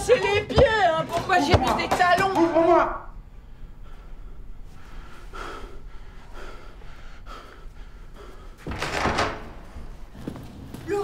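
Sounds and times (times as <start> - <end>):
man breathing agitatedly: 3.4 - 8.8.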